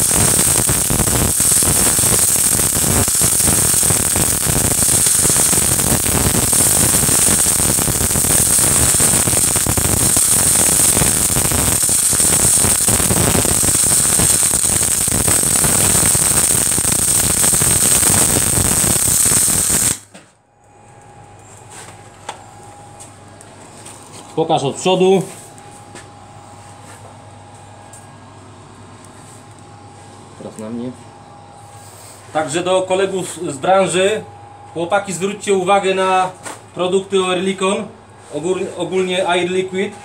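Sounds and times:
welding arc crackling: 0.0 - 20.1.

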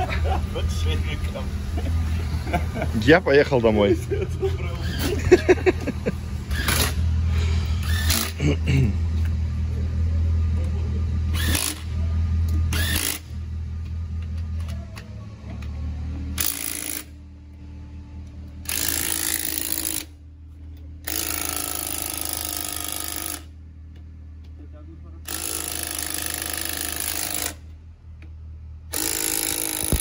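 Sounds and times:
vehicle engine idling: 0.0 - 29.0
impact wrench bursts: 6.5 - 7.1, 7.7 - 8.4, 11.3 - 12.0, 12.6 - 13.4, 16.3 - 17.2, 18.6 - 20.2, 21.0 - 23.6, 25.2 - 27.8, 28.9 - 30.0.

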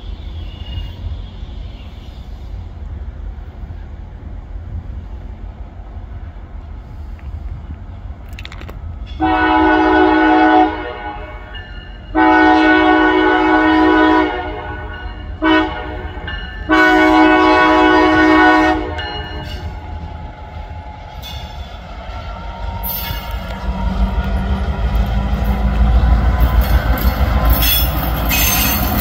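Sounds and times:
wind rumble on microphone: 2.7 - 10.1
locomotive horn blasts: 9.2 - 20.3.

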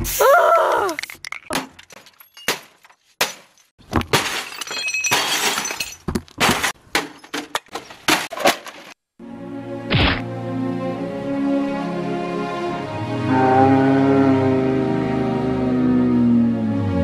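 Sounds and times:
objects smashing against television: 1.6 - 9.0.

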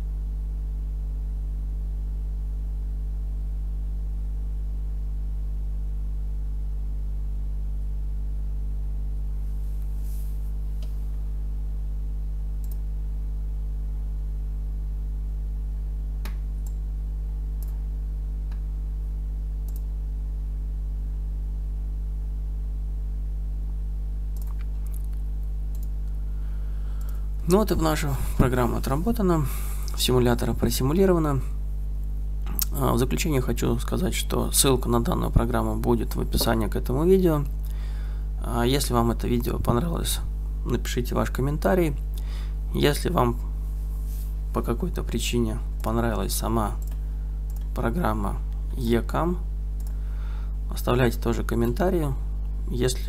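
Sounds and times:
low electrical hum: 0.0 - 53.0
computer mouse clicks: 12.6 - 12.8, 24.4 - 26.2, 46.8 - 47.8.

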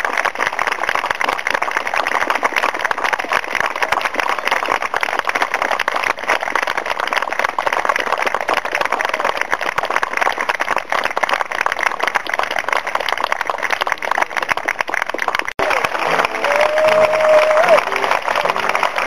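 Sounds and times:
crowd applauding: 0.0 - 19.0.

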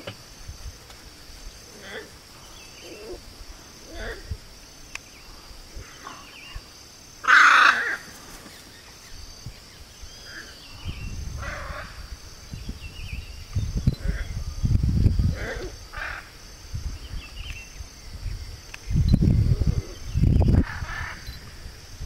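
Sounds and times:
high insect drone: 0.0 - 22.0
macaws calling: 7.2 - 9.0, 10.2 - 12.1, 15.3 - 16.4, 19.7 - 21.5.

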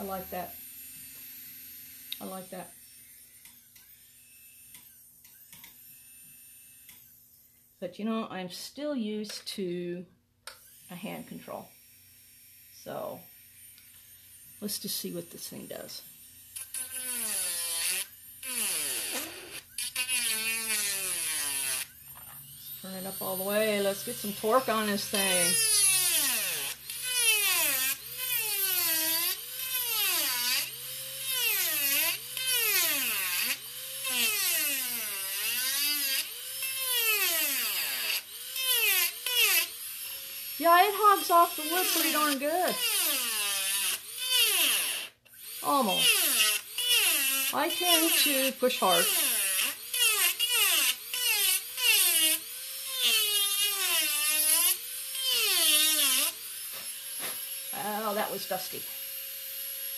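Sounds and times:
micro-motor whining cutting wood: 0.0 - 7.3, 10.5 - 59.9
bit rasping into wood: 16.6 - 22.0, 22.8 - 57.7.

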